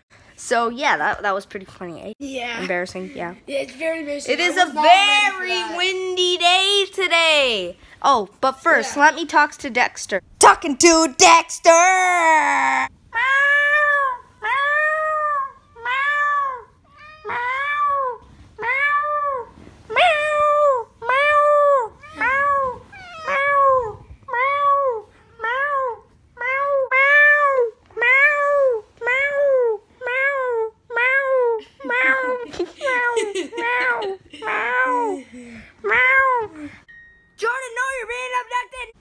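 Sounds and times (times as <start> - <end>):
cat meowing: 13.2 - 35.1.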